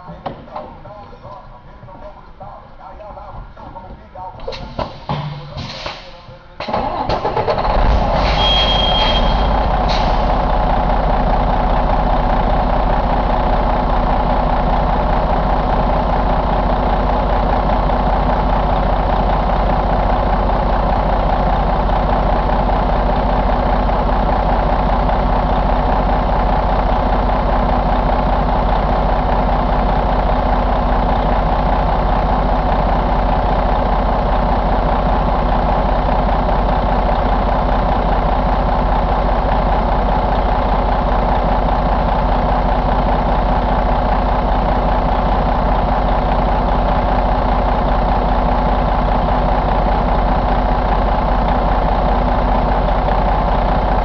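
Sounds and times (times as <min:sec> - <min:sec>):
diesel engine idling: 0:00.0 - 0:54.0
brief high tone: 0:08.4 - 0:09.6.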